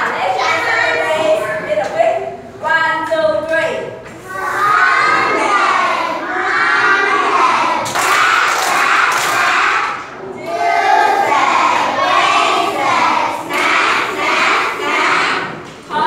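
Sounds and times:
children singing in unison: 0:04.2 - 0:15.6.

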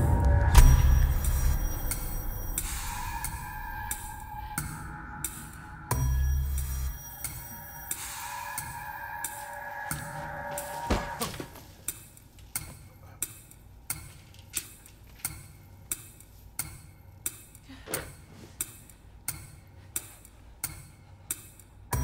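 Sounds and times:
heavy thump: 0:10.8 - 0:11.6.

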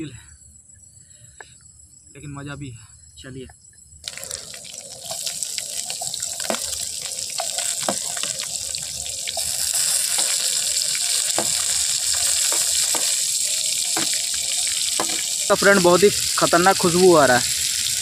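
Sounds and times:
vegetables sizzling in hot oil: 0:04.1 - 0:18.0.

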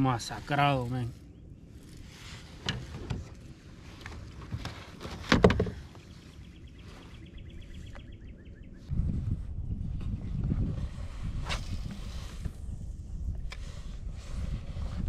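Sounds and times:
low rumble: 0:06.8 - 0:15.0.

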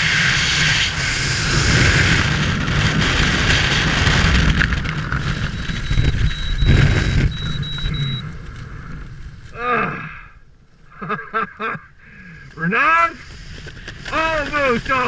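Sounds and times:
wind rushing over microphone: 0:00.0 - 0:09.6
parachute canopy flapping: 0:00.1 - 0:09.6, 0:12.5 - 0:15.0
short high beeps: 0:05.5 - 0:08.3.

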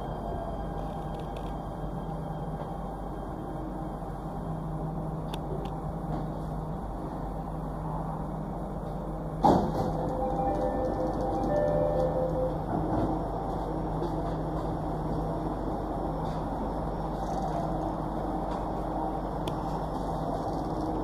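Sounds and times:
train rumble and hum: 0:00.0 - 0:21.0.

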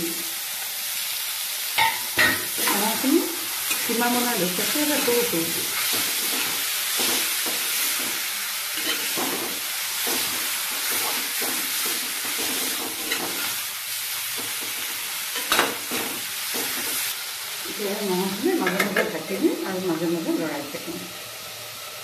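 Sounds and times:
meat sizzling in a pan: 0:00.0 - 0:22.0
steel spoon scraping pan: 0:03.6 - 0:08.2, 0:08.8 - 0:13.6.

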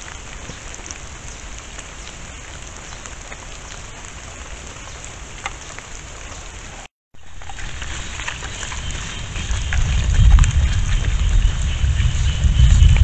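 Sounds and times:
steady rain-like hiss: 0:00.0 - 0:13.0
low rumble: 0:07.2 - 0:13.0.

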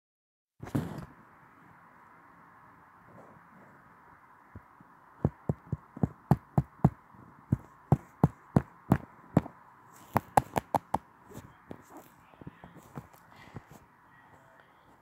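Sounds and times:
faint steady hiss: 0:00.6 - 0:15.0
sharp taps: 0:05.2 - 0:09.5, 0:10.1 - 0:11.0.

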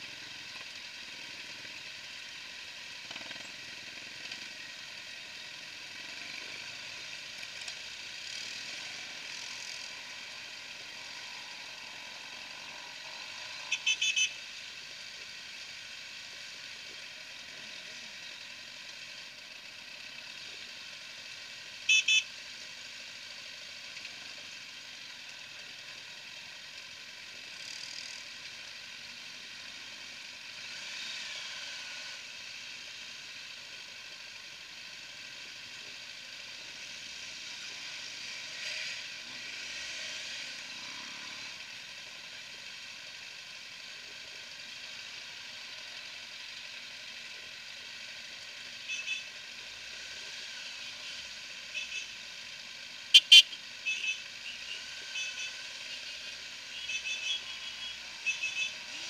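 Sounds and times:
motorcycles running at low speed: 0:00.0 - 0:59.0
horn toots: 0:13.7 - 0:14.4, 0:21.9 - 0:22.3, 0:48.9 - 0:49.3, 0:51.7 - 0:52.2, 0:53.1 - 0:55.6.

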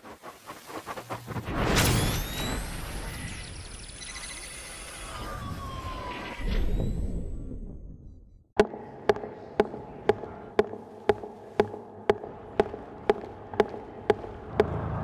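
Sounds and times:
falling electronic tone: 0:01.7 - 0:07.7
sharp ticking: 0:08.6 - 0:14.7.

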